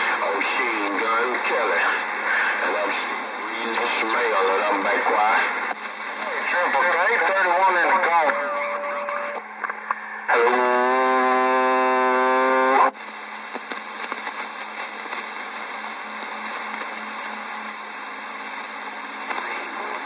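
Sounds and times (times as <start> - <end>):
radio buzzing tone: 0.0 - 20.0
radio static hiss: 0.0 - 20.0.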